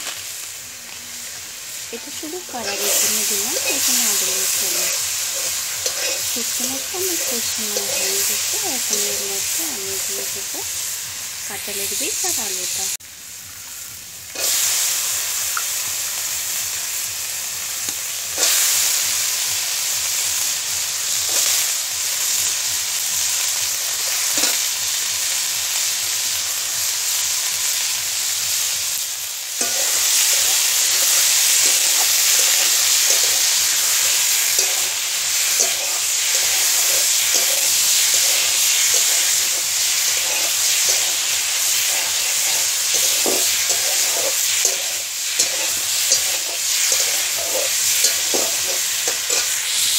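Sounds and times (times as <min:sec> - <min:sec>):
food sizzling in hot oil: 0:00.0 - 0:49.9
spatula scraping pan: 0:02.5 - 0:10.4, 0:29.6 - 0:49.9.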